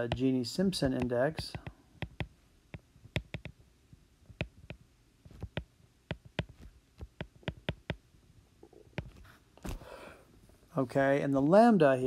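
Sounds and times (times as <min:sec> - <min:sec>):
stylus tapping on glass screen: 0:00.8 - 0:03.6, 0:04.3 - 0:08.0.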